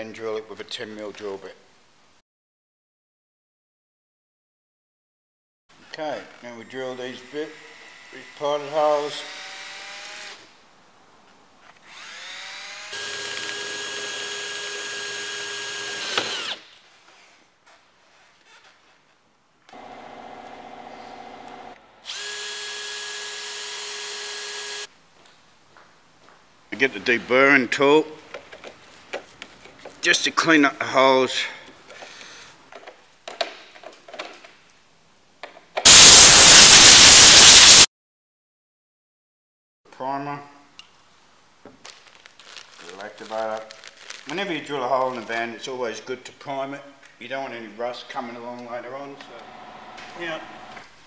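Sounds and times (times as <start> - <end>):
cordless drill boring metal: 11.9 - 16.6, 19.8 - 24.9, 35.9 - 37.8
air blow gun hissing: 35.9 - 37.9.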